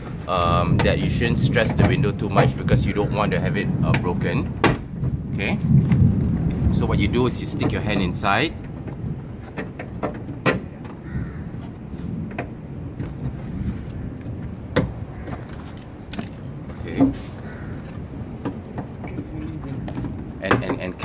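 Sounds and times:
steady low rumble: 0.0s - 21.0s
knocks and rubbing inside car door: 3.9s - 6.8s, 7.5s - 11.1s, 12.2s - 15.5s.

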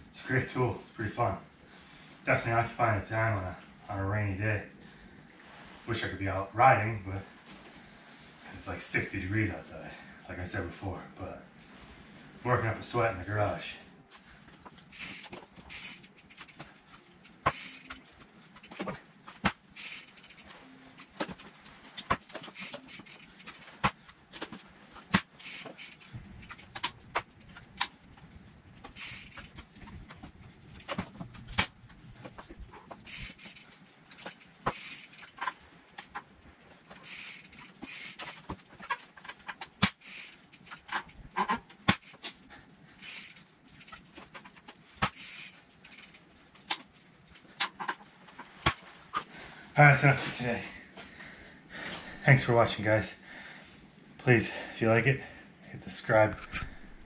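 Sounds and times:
bike knocking against wooden frame: 14.6s - 28.0s, 28.8s - 36.3s, 36.9s - 42.4s, 43.0s - 49.2s.

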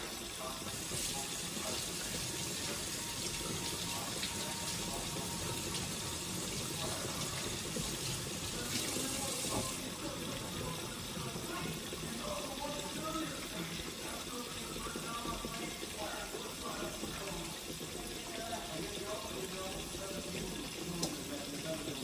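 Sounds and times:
fish sizzling in hot oil: 0.0s - 22.0s.

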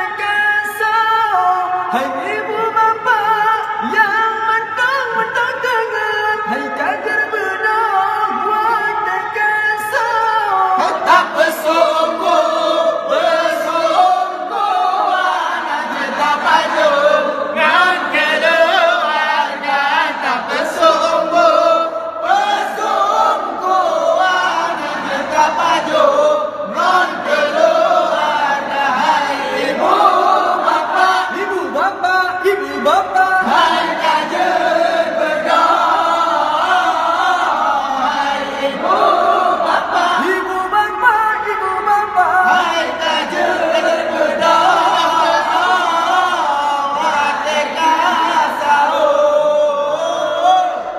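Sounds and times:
group of voices chanting: 10.8s - 31.8s, 33.4s - 40.5s, 42.4s - 50.9s.

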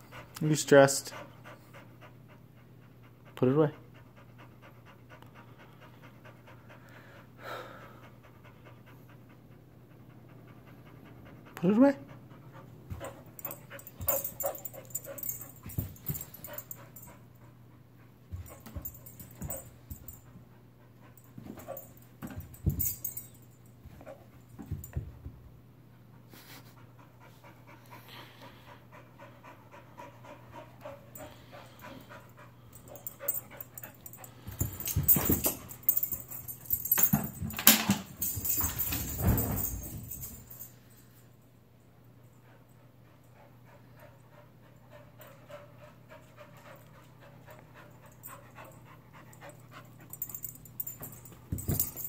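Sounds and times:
dog panting and whimpering: 0.0s - 23.4s, 26.0s - 37.3s, 42.4s - 52.0s
knocks and rustles: 21.2s - 25.4s, 32.9s - 40.7s, 50.1s - 52.0s.

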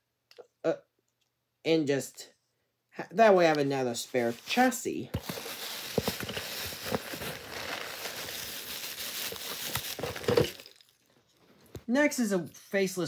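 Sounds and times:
hands rustling over cloth: 4.1s - 10.8s.

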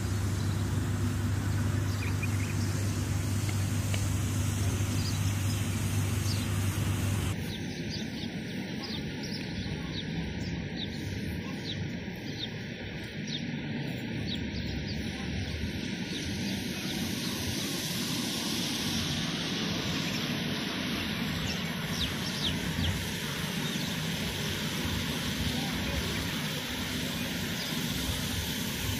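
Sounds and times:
low hum: 0.0s - 8.6s
distant traffic rumble: 0.0s - 28.9s
small birds chirping: 0.0s - 28.9s.

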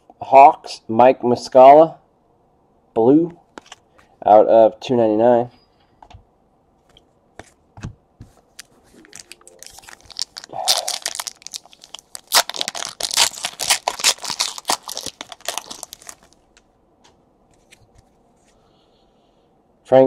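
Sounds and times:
foil wrapper tearing and crinkling: 9.1s - 16.4s.

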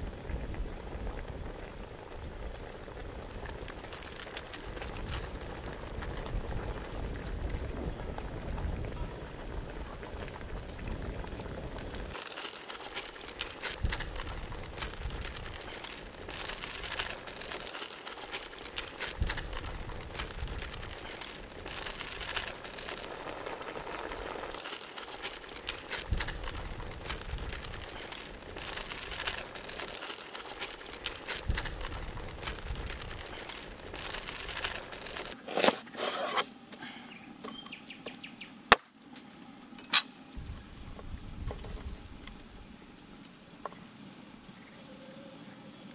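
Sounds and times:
stew sizzling in a pot: 0.0s - 36.6s.

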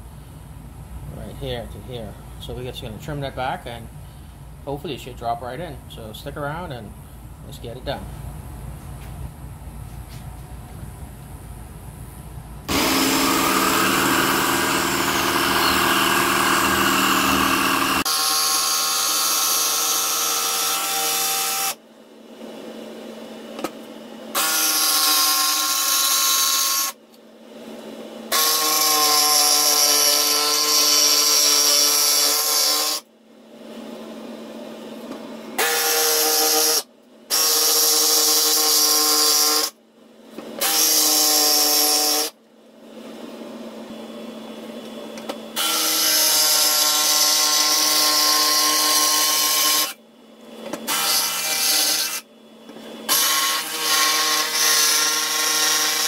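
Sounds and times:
jigsaw cutting: 12.7s - 21.8s, 24.3s - 27.0s, 28.3s - 33.0s, 35.6s - 39.8s, 40.6s - 42.4s, 45.6s - 50.0s, 50.8s - 52.2s, 53.1s - 56.0s.

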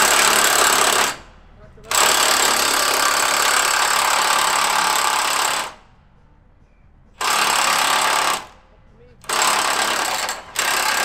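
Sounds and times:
impact wrench hammering: 0.0s - 1.2s, 1.9s - 5.8s, 7.2s - 8.6s, 9.2s - 11.0s.

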